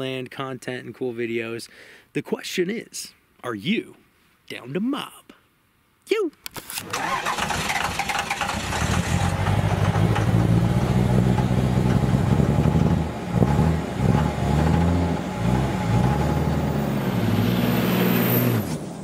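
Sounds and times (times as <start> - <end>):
vehicle engine revving: 6.9 - 19.0.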